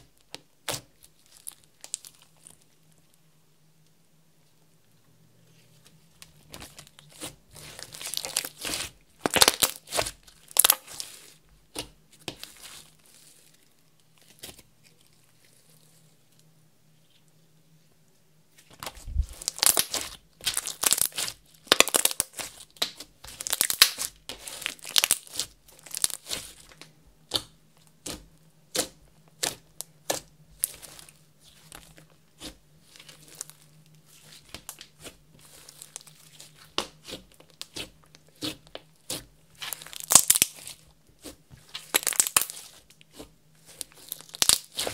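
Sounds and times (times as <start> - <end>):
slime crackling and popping: 0.3 - 2.6, 6.5 - 13.5, 18.8 - 44.9.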